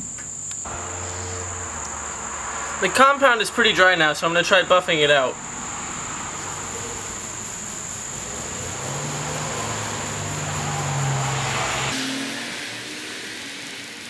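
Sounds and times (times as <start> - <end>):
high-pitched insect drone: 0.0 - 14.0
low hum: 0.7 - 4.0.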